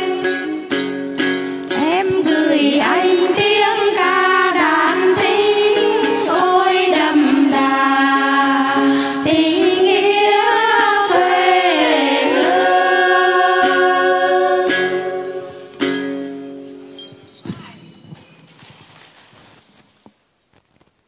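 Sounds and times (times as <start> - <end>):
women singing folk song: 0.0 - 15.7.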